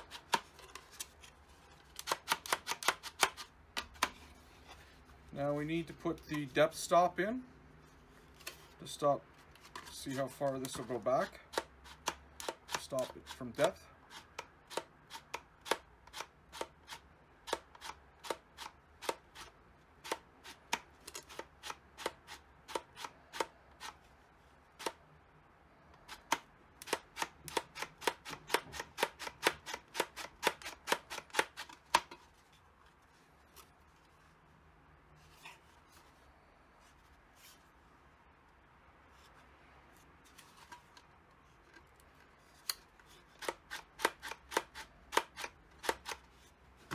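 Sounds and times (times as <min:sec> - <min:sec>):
sharp plastic clicks: 0:01.9 - 0:04.2, 0:11.5 - 0:24.0, 0:24.8 - 0:25.0, 0:26.0 - 0:32.2, 0:42.6 - 0:46.3.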